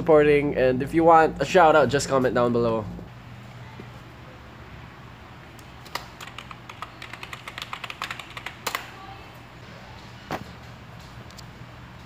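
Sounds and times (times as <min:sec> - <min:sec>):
steady low hum: 0:00.0 - 0:12.0
computer keyboard typing: 0:05.8 - 0:08.9.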